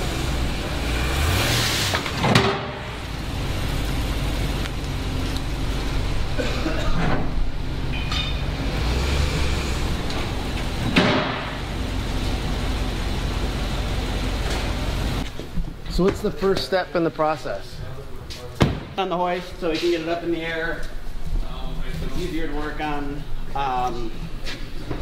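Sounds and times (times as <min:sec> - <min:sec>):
pickup truck engine running: 0:00.0 - 0:15.3.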